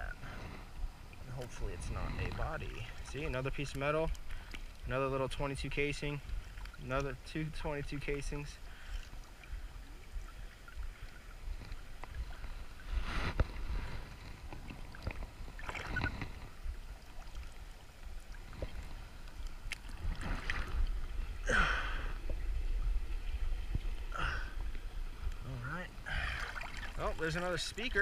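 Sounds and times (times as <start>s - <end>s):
steady low rumble: 0.0s - 27.9s
river water splashing: 8.2s - 25.2s, 25.9s - 28.0s.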